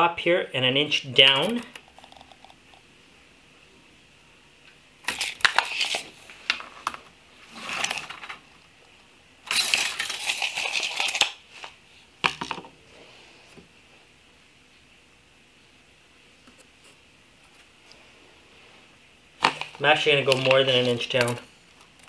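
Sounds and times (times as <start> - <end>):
tape measure and boards rattling: 5.1 - 6.1, 9.5 - 11.4.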